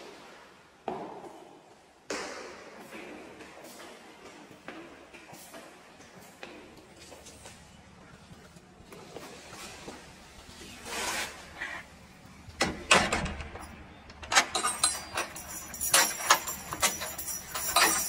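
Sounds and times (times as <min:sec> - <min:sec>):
music with jingling percussion: 0:14.7 - 0:18.0.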